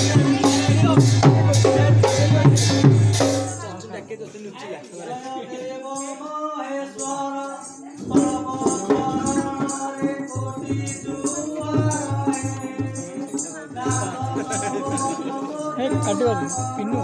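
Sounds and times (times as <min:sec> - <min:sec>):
person singing: 0:00.0 - 0:03.7, 0:05.0 - 0:17.0
drum beating: 0:00.0 - 0:03.8, 0:08.0 - 0:17.0
small cymbals jingling: 0:05.8 - 0:17.0.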